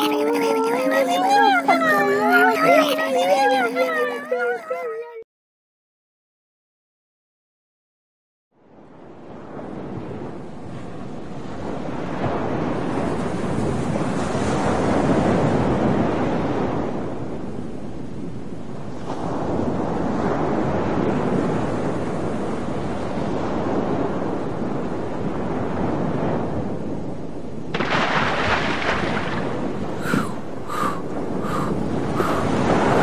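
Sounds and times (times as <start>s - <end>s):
wind and sea rushing: 0.0s - 4.8s, 8.6s - 33.0s.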